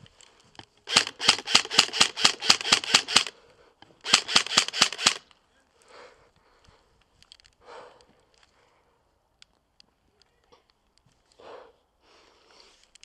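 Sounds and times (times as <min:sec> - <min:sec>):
airsoft gun shots: 0:00.9 - 0:03.3, 0:04.0 - 0:05.2.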